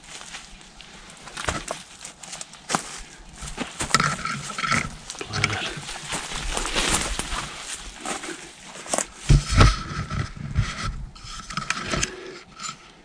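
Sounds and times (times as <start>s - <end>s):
twigs crackling and snapping: 0.0s - 10.2s
heavy breathing: 2.9s - 9.0s.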